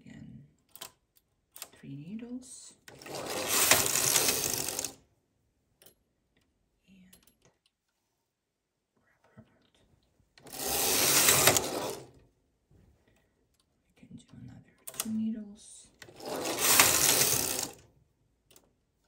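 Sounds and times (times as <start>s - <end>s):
knitting machine carriage rushing: 2.9s - 5.0s, 10.4s - 12.2s, 16.0s - 17.8s.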